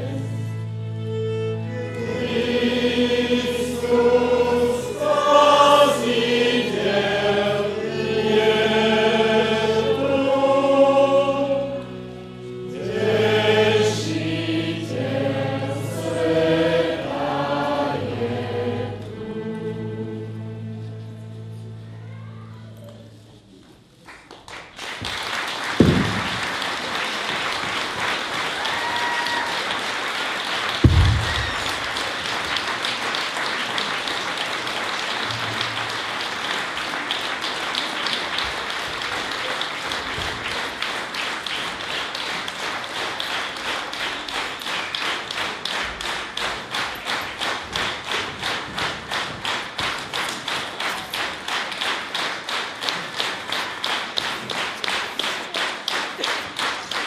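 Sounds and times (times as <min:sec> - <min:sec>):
person singing: 0:01.8 - 0:11.9
audience applause: 0:24.0 - 0:57.0
rhythmic clapping in unison: 0:24.1 - 0:57.0.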